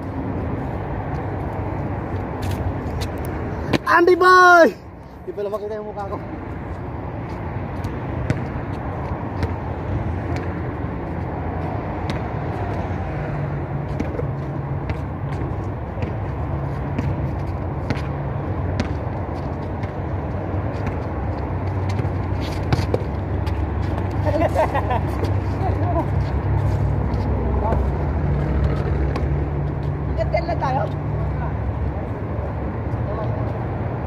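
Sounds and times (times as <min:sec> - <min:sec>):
footsteps: 0:01.0 - 0:03.9, 0:18.8 - 0:30.0
basketball bouncing on concrete: 0:07.8 - 0:09.7, 0:10.3 - 0:10.7, 0:11.9 - 0:12.7, 0:13.9 - 0:24.1, 0:28.6 - 0:29.8.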